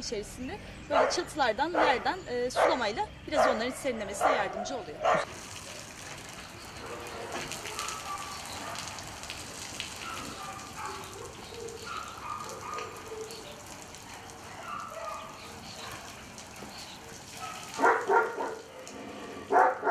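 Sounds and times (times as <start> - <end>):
dog barking: 0.9 - 5.3, 6.8 - 9.0, 10.0 - 16.1, 17.4 - 19.9
hose water spraying on metal roofs: 5.2 - 19.9.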